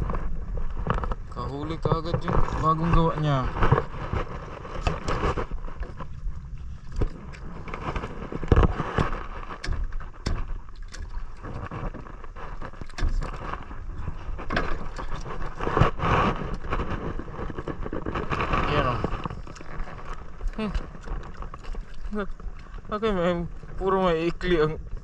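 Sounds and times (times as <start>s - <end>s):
wind buffeting the microphone: 0.0s - 25.0s
scattered knocks: 7.0s - 12.0s.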